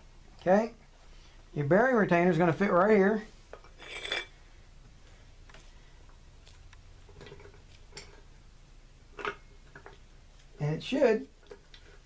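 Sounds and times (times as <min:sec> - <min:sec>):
metal clink: 0:03.8 - 0:04.4.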